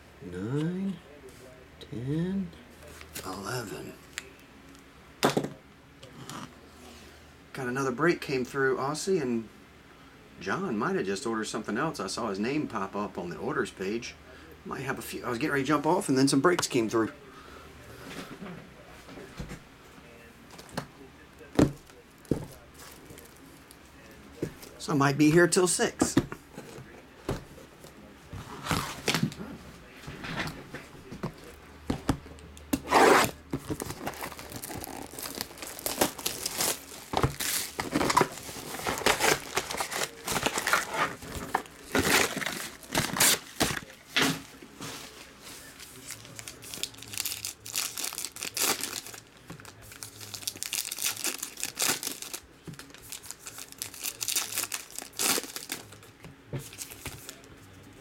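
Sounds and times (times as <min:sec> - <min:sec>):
foil wrappers tearing and crinkling: 0:32.9 - 0:44.3, 0:45.8 - 0:56.0.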